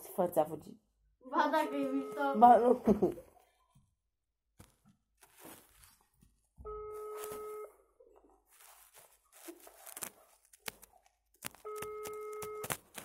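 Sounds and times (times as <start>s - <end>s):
telephone ringback tone: 1.6s - 2.8s, 6.7s - 7.8s, 11.7s - 12.7s.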